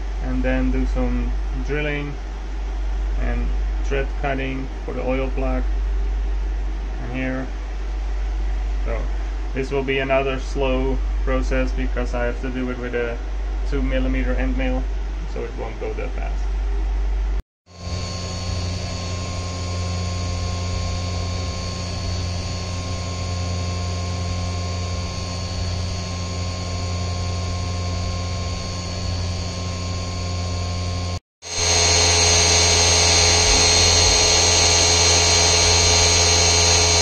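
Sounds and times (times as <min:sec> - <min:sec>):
milling machine whine: 0:17.7 - 0:37.0
end mill cutting metal: 0:17.8 - 0:37.0.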